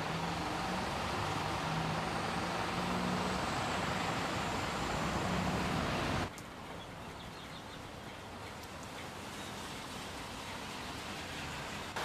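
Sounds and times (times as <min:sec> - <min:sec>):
heavy rain on wet street: 0:08.4 - 0:12.0.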